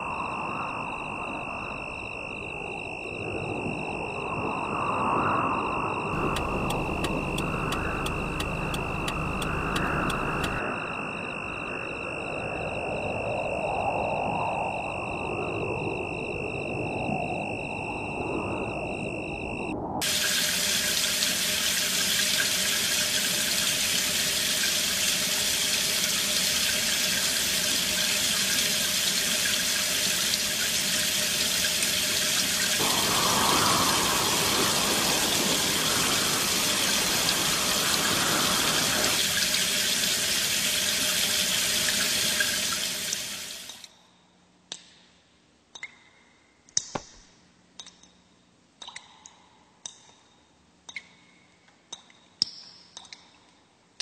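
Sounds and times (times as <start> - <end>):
loud rushing water: 20.0 - 43.7.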